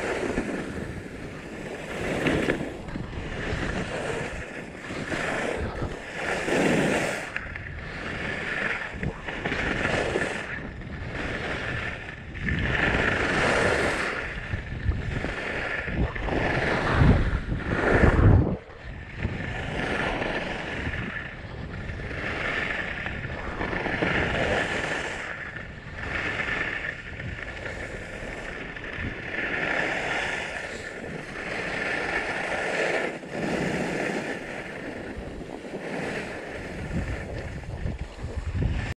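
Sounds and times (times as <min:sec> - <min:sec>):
skis swishing on snow: 0:00.0 - 0:07.4, 0:22.2 - 0:38.9
wind rumble on microphone: 0:00.0 - 0:38.9.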